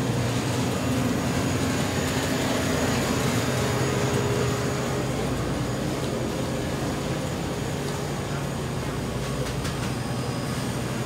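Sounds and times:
refrigerated coolers humming: 0.0 - 11.0.

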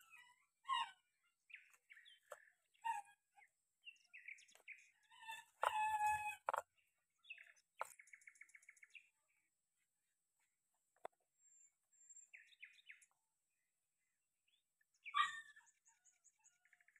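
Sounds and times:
bird trill: 0.0 - 9.1, 15.0 - 16.9
birds chirping: 0.0 - 9.6, 11.5 - 13.7.

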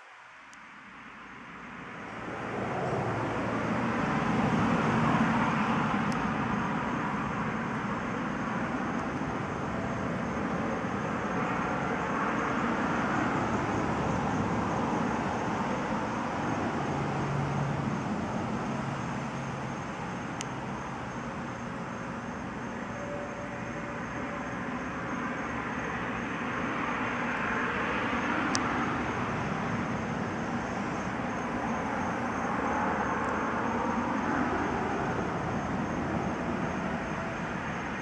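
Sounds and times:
distant traffic rushing: 0.9 - 38.0.

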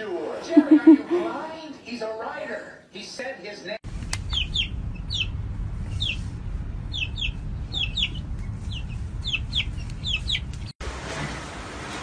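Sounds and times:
low rumble: 3.8 - 10.7
chick peeping: 4.1 - 5.3, 5.9 - 6.2, 6.9 - 10.7.

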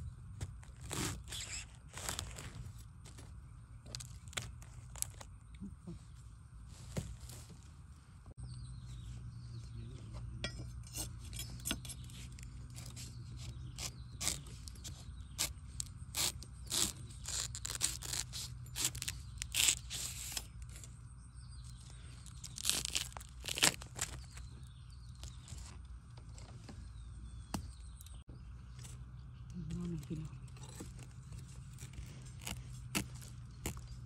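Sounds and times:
knife crunching bamboo shoot: 11.0 - 20.8, 22.3 - 24.4, 31.8 - 34.0.

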